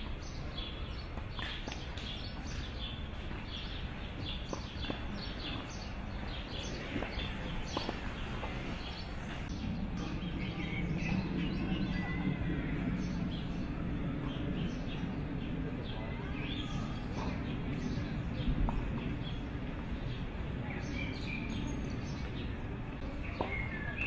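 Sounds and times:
outdoor background noise: 0.0 - 24.0
small birds chirping: 0.0 - 24.0
low hum: 5.8 - 20.8.

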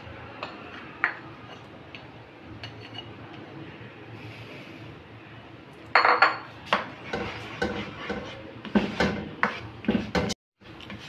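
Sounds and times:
spatula scraping metal pan: 6.9 - 10.4.

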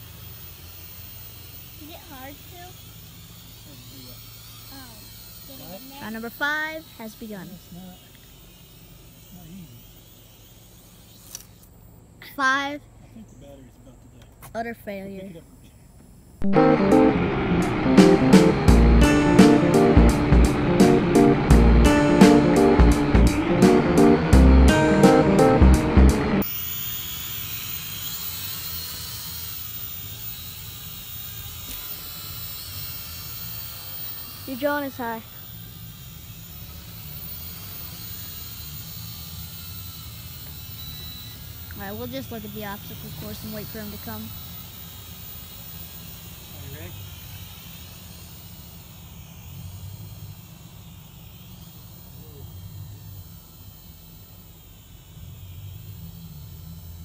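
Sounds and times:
drone propellers whining: 0.0 - 13.0, 14.3 - 57.0
guitar music: 16.4 - 26.4
low rumble: 16.4 - 26.4.

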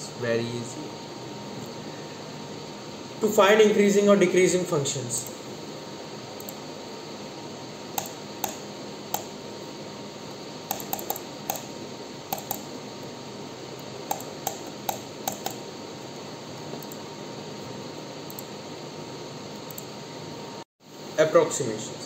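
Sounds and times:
steady background hiss: 0.0 - 22.0
computer keyboard clicks: 8.0 - 9.3, 10.7 - 11.7, 12.3 - 12.7, 14.1 - 15.6.

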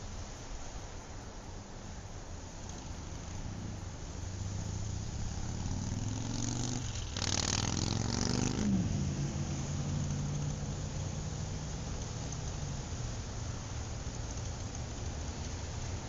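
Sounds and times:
vehicle engine revving: 2.7 - 12.6.

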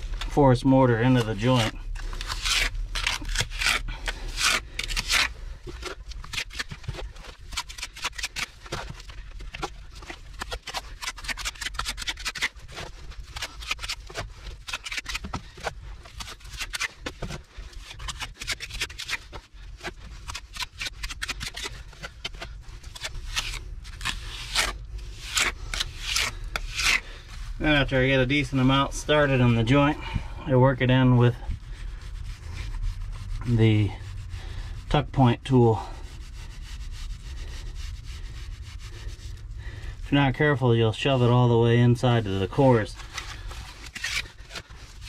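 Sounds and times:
trowel scraping mortar: 0.9 - 30.0, 42.0 - 45.0.

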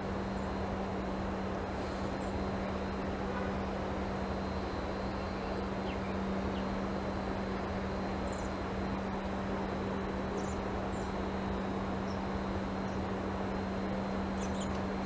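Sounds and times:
constant low hum: 0.0 - 15.0.

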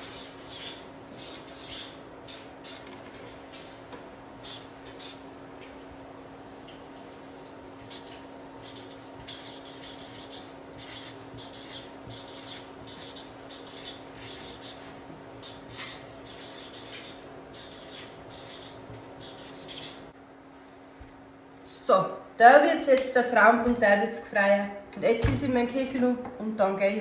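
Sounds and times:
marker scratching on paper: 0.0 - 2.9, 4.4 - 5.2, 7.8 - 20.0
steady low hum: 0.0 - 27.0.

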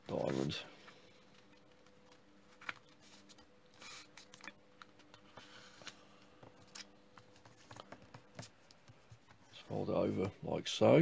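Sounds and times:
faint steady hum: 0.0 - 11.0
paper rustling and creasing: 1.8 - 10.3.

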